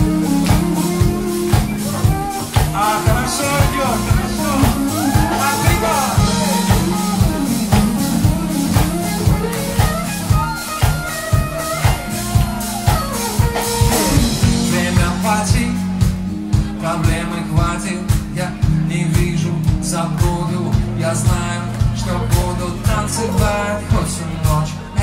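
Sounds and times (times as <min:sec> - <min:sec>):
bass guitar: 0:00.0 - 0:25.0
electric guitar lead: 0:00.0 - 0:25.0
steady drum beat: 0:00.0 - 0:25.0.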